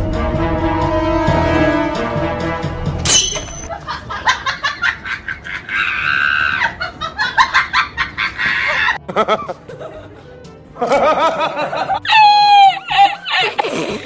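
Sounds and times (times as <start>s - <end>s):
comedic laughter: 3.7s - 14.0s
screaming: 5.7s - 6.8s, 8.4s - 9.0s, 12.0s - 13.6s.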